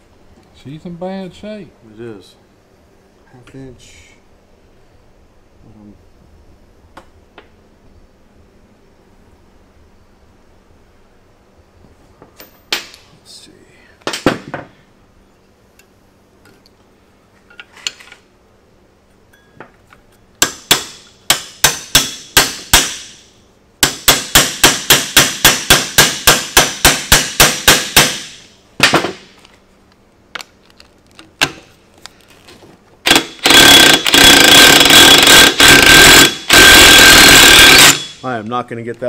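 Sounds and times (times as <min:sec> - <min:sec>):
impact wrench running: 0:23.8 - 0:28.4, 0:33.0 - 0:38.2.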